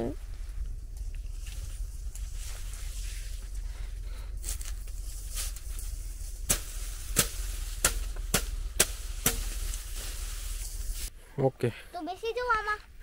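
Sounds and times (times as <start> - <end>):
low steady rumble: 0.0 - 13.0
sickle chopping grass stalks: 4.4 - 11.1.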